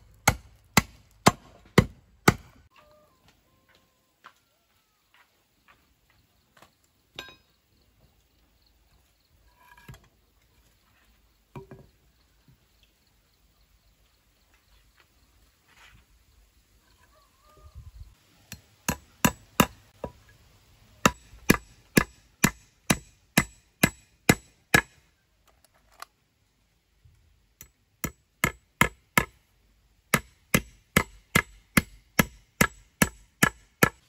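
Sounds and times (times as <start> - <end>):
hand tool striking wood: 0.2 - 2.5, 21.0 - 25.0, 30.1 - 34.0.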